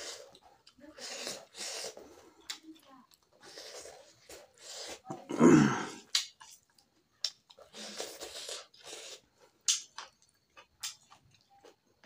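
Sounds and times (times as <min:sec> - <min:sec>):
wet chewing and lip-smacking: 0:06.1 - 0:11.8.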